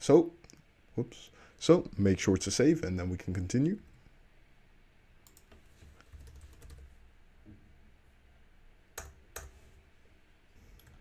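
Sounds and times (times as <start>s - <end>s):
computer keyboard typing: 5.2s - 6.9s
loud keyboard clicks: 5.3s - 6.9s.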